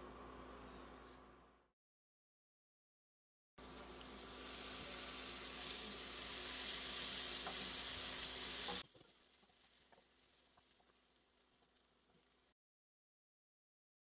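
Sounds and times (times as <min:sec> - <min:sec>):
vegetables sizzling in a pan: 0:03.6 - 0:12.6
spatula stirring: 0:04.3 - 0:12.5.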